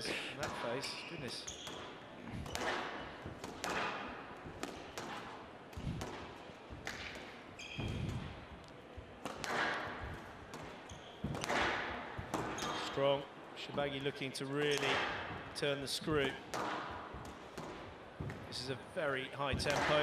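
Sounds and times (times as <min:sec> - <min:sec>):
shoes squeaking on floor: 0:00.0 - 0:05.2, 0:05.8 - 0:16.4
racket hitting squash ball: 0:01.4 - 0:13.0, 0:14.6 - 0:15.6, 0:16.2 - 0:18.6, 0:19.4 - 0:20.0.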